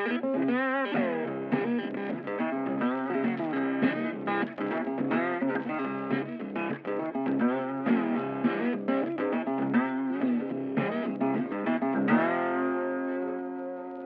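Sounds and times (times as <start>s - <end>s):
guitar melody: 0.0s - 14.0s.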